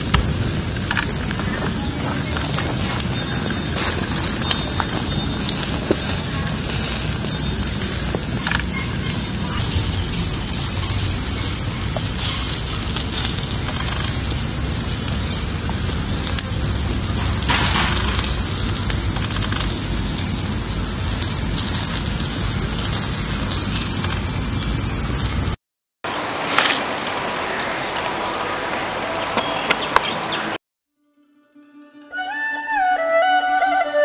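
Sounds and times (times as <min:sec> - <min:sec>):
even rushing noise: 0:00.0 - 0:25.6
insects buzzing: 0:00.0 - 0:25.6.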